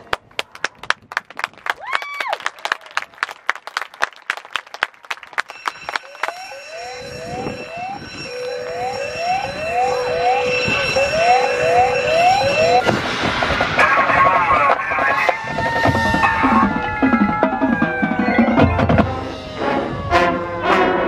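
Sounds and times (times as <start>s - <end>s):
siren-like whooping alarm: 5.4s - 21.0s.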